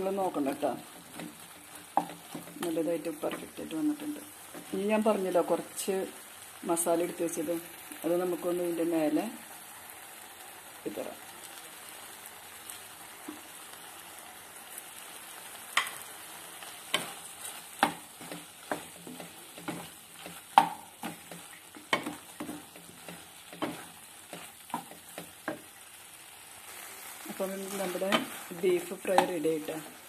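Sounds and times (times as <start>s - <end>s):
faint sizzle: 0.0s - 30.0s
spatula scraping a frying pan: 15.8s - 25.9s.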